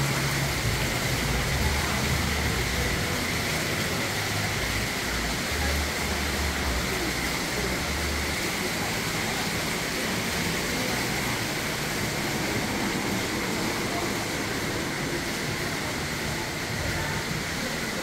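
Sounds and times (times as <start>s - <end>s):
city street hiss: 0.0s - 18.0s.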